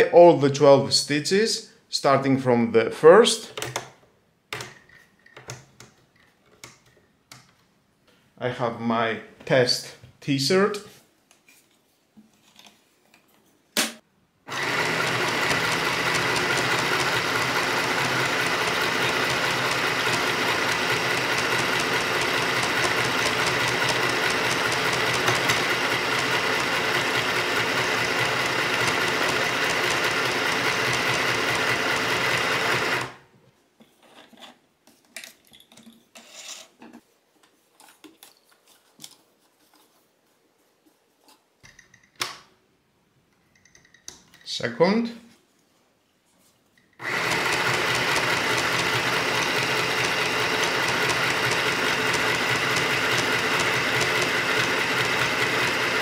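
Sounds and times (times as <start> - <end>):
sewing machine stitching: 14.5 - 33.2, 47.0 - 56.0
handling noises: 33.4 - 42.2.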